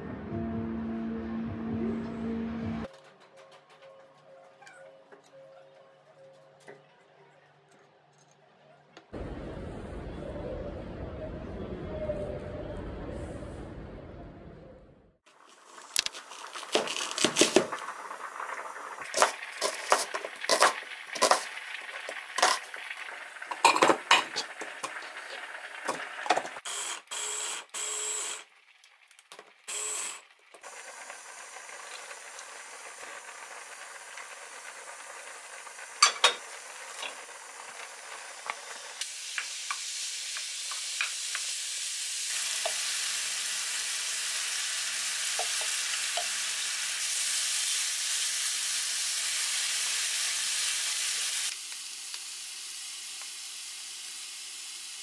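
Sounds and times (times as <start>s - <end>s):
meat sizzling in a frying pan: 15.3s - 26.6s, 29.7s - 55.0s.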